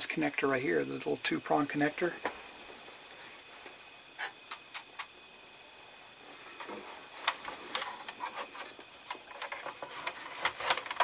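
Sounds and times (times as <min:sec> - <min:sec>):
plastic parts rubbing: 0:07.2 - 0:11.0
plastic parts clicking: 0:09.1 - 0:11.0.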